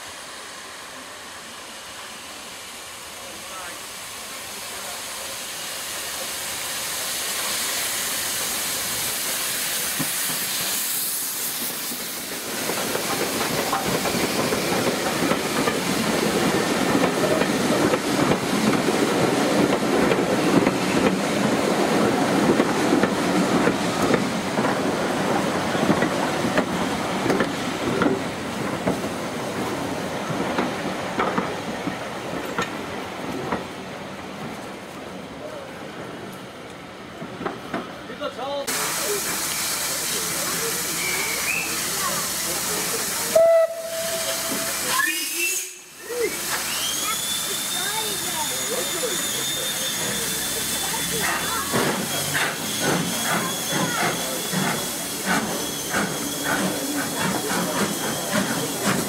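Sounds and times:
steam hissing: 0.0 - 34.6, 38.4 - 59.0
train wheels clattering on rail joints: 11.5 - 29.6, 30.4 - 33.7, 51.2 - 59.0.

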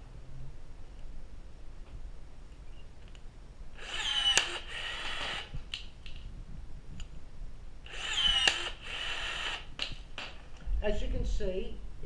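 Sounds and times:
rivet tool motor whirring: 3.8 - 5.5, 7.9 - 9.7.

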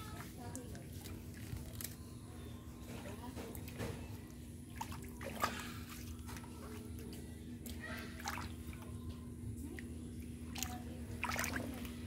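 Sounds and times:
sloshing in muddy water: 4.8 - 6.8, 7.6 - 8.8, 10.5 - 12.0
water splashes: 4.8 - 6.8, 10.5 - 12.0.

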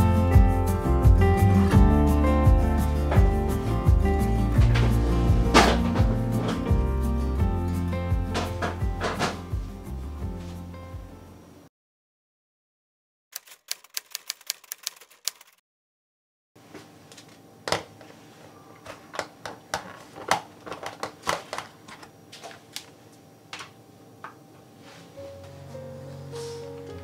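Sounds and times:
typewriter key clicks: 13.4 - 15.6
food containers handled on counter: 18.8 - 22.9.

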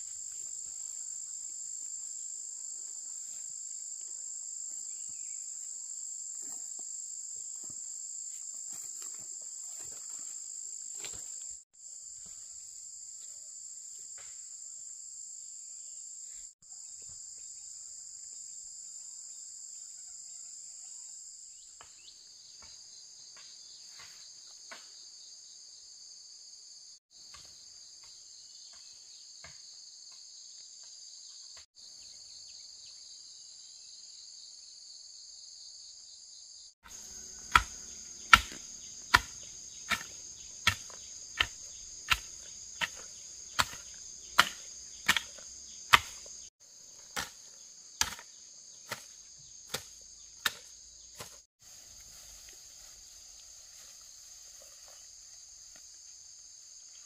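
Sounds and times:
insects chirring: 0.0 - 57.0.

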